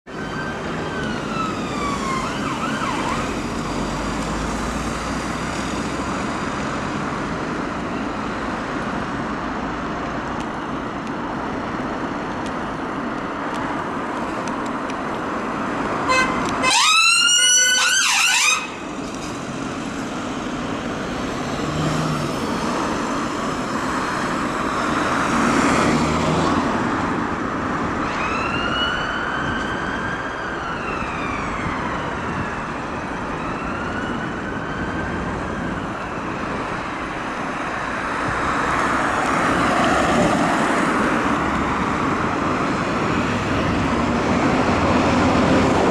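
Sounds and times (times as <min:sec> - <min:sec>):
road traffic: 0:00.0 - 0:45.9
siren yelping: 0:00.1 - 0:03.4, 0:16.1 - 0:18.8, 0:28.0 - 0:36.5
siren wailing: 0:00.1 - 0:03.9, 0:16.1 - 0:18.9, 0:28.0 - 0:36.9.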